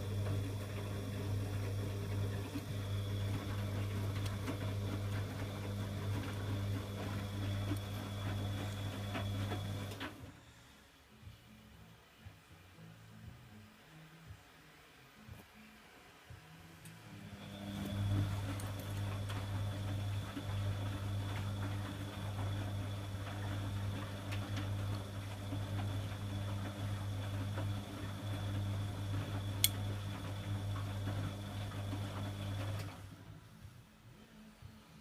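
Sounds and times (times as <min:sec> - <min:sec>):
washing machine drum motor humming: 0:00.0 - 0:10.3, 0:17.2 - 0:33.2.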